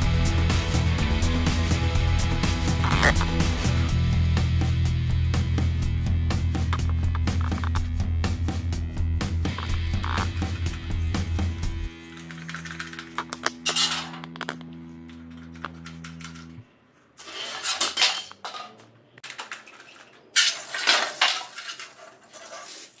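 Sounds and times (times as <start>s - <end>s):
metallic clinks of cans: 12.2s - 14.3s.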